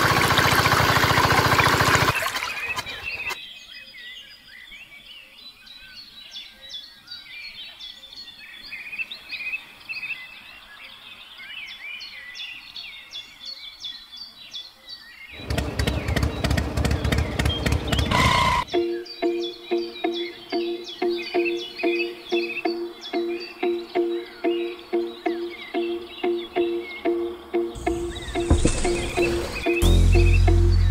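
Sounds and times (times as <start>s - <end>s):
loud rapid clicking noise: 0.0s - 2.4s
small birds chirping: 0.4s - 30.9s.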